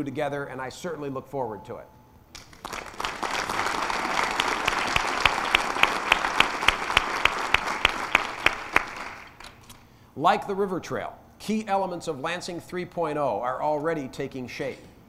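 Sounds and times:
close hand claps: 2.3s - 9.6s
audience applauding: 2.4s - 9.6s.

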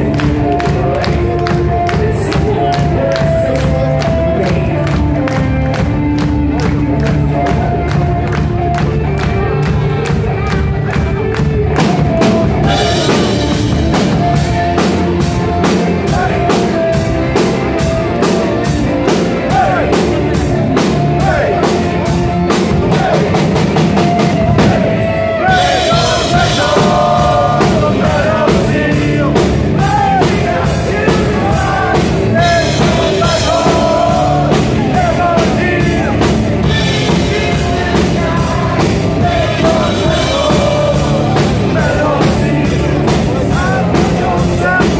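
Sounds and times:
man singing: 0.0s - 8.4s, 9.4s - 44.9s
electric guitar: 0.0s - 44.9s
fast drums with cymbal strikes: 11.8s - 44.9s.

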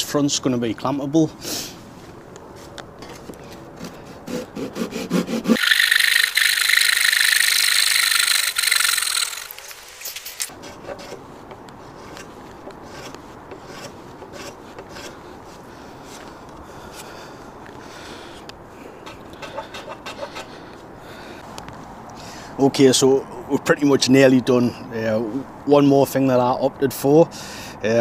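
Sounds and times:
hand saw sawing wood: 3.7s - 9.6s, 10.5s - 16.3s, 19.0s - 20.5s.

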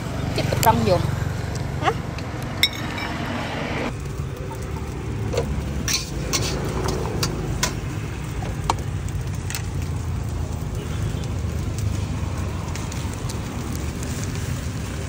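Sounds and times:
metal spatula scraping wok: 4.7s - 8.0s.

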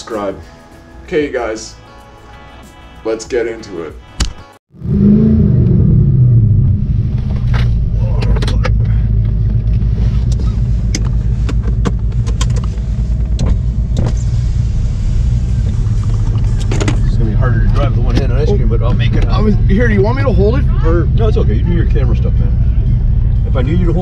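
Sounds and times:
car engine idling: 5.6s - 24.0s.

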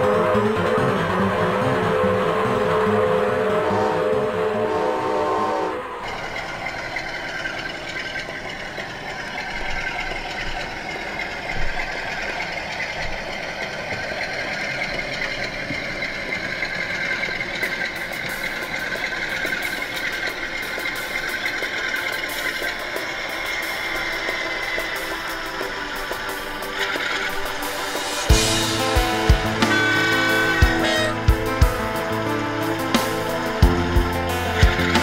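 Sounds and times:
music: 0.0s - 6.2s, 17.7s - 35.0s
model train running on track: 0.0s - 35.0s.

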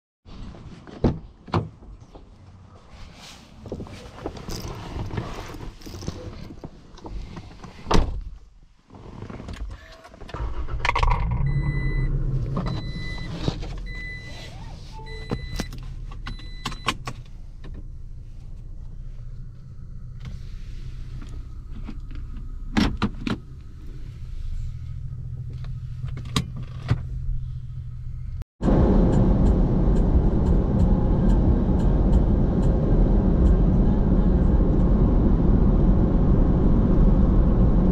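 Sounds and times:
car engine starting and idling: 9.8s - 37.9s
dashboard warning chime beeping: 11.4s - 17.0s
truck driving at highway speed: 27.8s - 37.9s.

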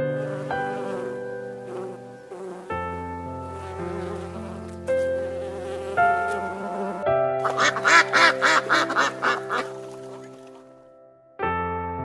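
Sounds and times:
background music with sustained notes: 0.0s - 12.0s
duck quacking: 7.4s - 10.3s.

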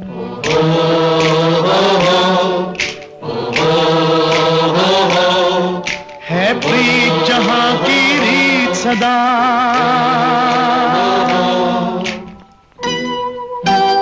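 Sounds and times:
chorus singing wordless notes: 0.0s - 13.2s.

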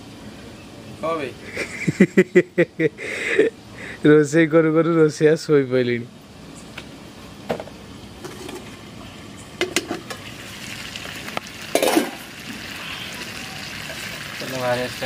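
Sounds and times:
curry sizzling in a pan: 10.0s - 15.0s.

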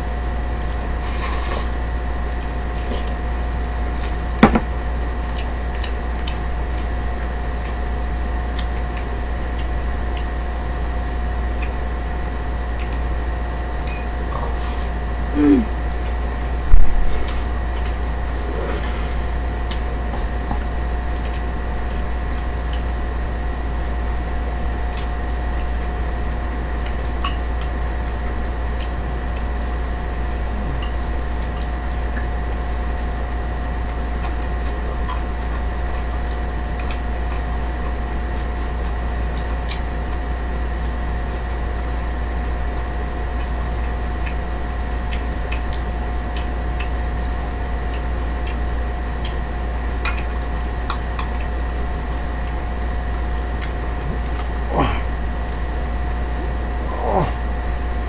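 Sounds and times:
low background hum: 0.0s - 58.0s
chopsticks clicking while eating: 5.3s - 7.8s, 8.5s - 10.3s, 11.6s - 11.8s, 12.8s - 13.0s, 33.9s - 37.4s, 38.3s - 40.2s, 42.4s - 44.4s, 45.0s - 48.6s, 49.2s - 49.4s, 50.0s - 51.6s, 53.6s - 55.0s.

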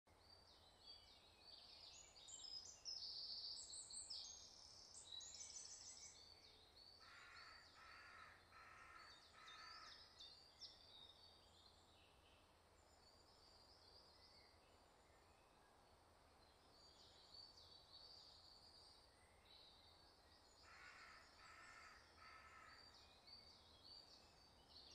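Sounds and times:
songbirds twittering: 0.1s - 24.9s.

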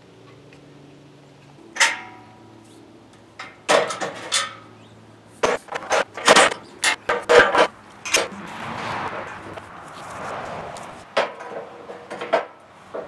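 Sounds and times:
ringing metal clang: 1.6s - 2.5s
clattering metal knocks: 3.4s - 4.7s, 5.4s - 8.3s, 11.1s - 13.0s.

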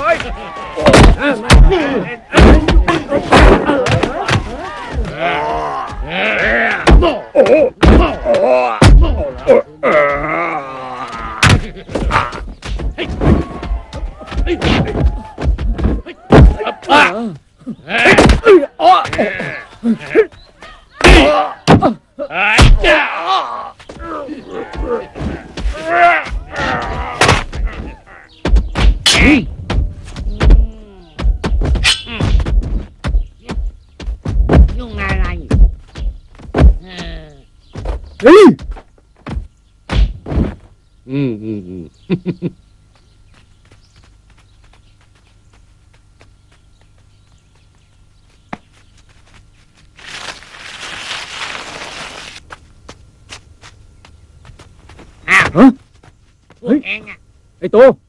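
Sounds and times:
punch and kick impacts: 0.8s - 5.1s, 6.8s - 9.3s, 11.4s - 16.7s, 22.6s - 22.9s, 24.8s - 37.2s, 37.8s - 40.7s
footsteps and scuffles on dirt: 19.2s - 21.0s, 23.6s - 36.8s, 37.4s - 39.8s, 42.8s - 57.2s.

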